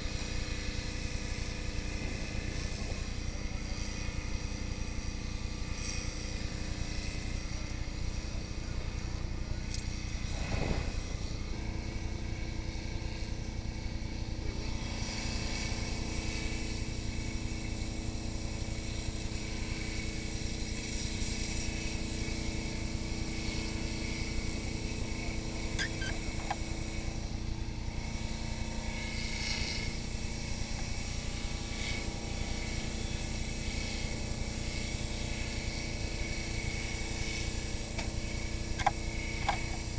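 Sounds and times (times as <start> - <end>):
fire truck engine droning: 23.8 - 28.7.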